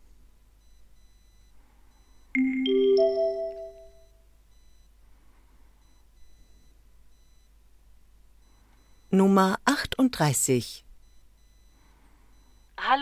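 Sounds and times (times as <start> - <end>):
rising three-note chime: 2.4 - 4.1.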